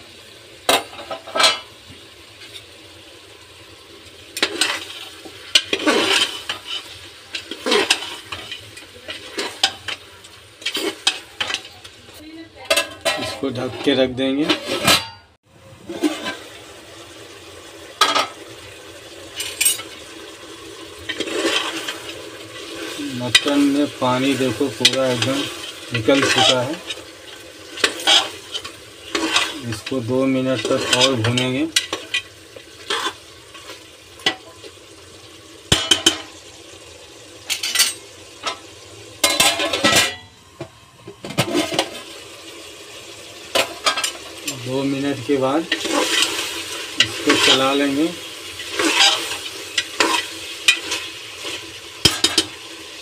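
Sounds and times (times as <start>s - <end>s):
meat sizzling: 0.0s - 53.0s
ladle scraping metal pot: 4.4s - 11.9s, 12.7s - 16.6s, 20.8s - 34.7s, 41.2s - 42.1s, 43.5s - 52.6s
pot lid clanking: 48.5s - 52.6s.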